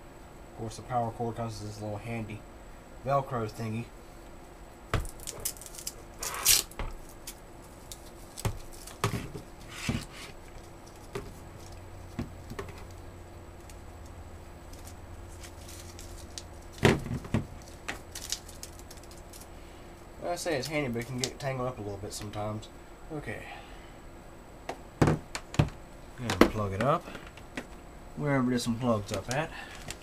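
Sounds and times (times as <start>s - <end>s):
power cord rustling and clicking: 29.0s - 30.0s.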